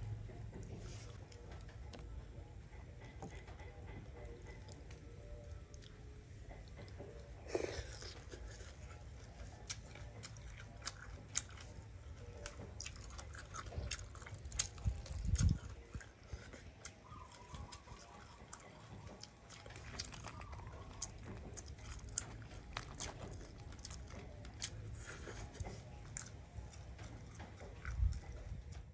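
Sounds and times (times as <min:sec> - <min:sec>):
person chewing fish: 0:00.1 - 0:28.9.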